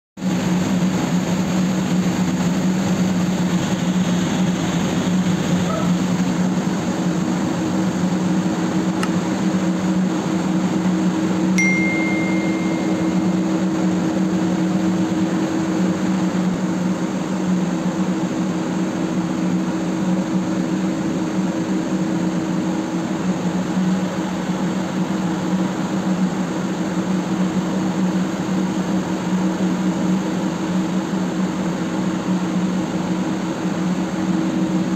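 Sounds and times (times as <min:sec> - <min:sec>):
engine room machinery hum: 0:00.2 - 0:34.9
short high steady tone: 0:11.6 - 0:13.9.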